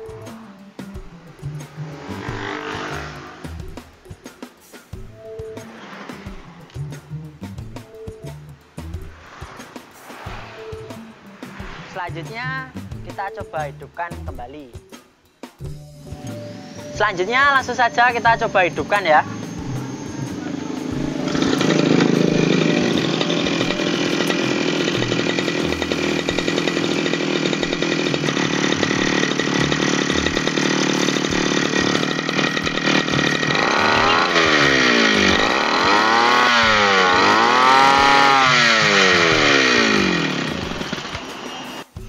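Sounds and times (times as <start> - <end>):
brush cutter engine: 1.4 - 4.0, 16.1 - 41.9.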